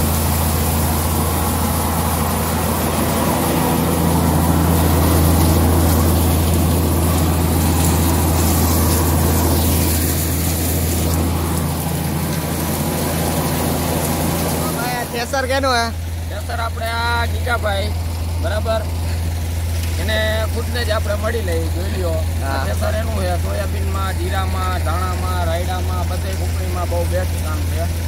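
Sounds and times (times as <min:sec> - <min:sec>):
broad rushing noise: 0:00.0 - 0:16.4
thresher engine hum: 0:00.0 - 0:28.0.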